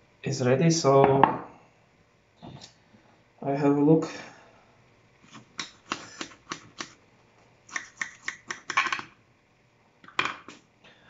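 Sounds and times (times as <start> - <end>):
sharp clicks and taps: 7.7 - 9.1.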